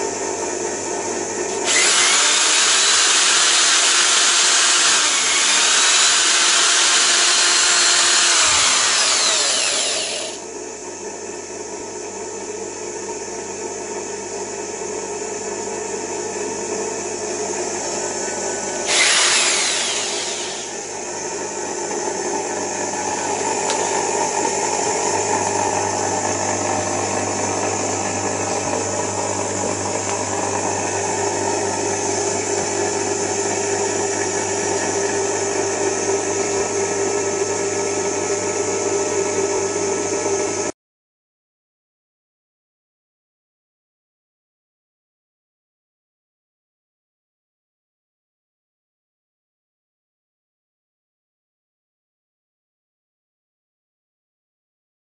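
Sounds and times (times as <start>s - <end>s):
mechanical hum: 0.0s - 40.7s
electric drill running: 1.5s - 10.4s, 18.3s - 21.6s.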